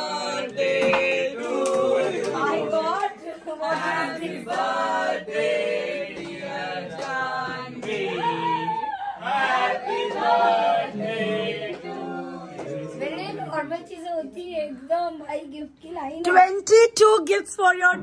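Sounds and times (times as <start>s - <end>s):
voices singing together: 0.0s - 13.7s.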